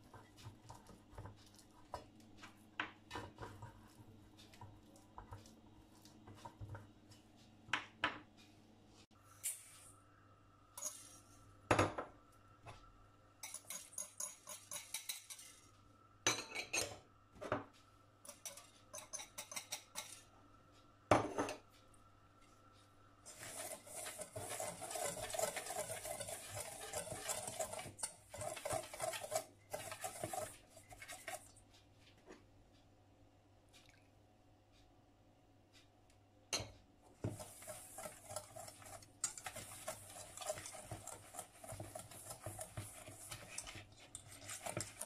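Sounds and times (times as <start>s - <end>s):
wire whisk scraping metal bowl: 23.3s - 31.6s, 37.2s - 45.0s.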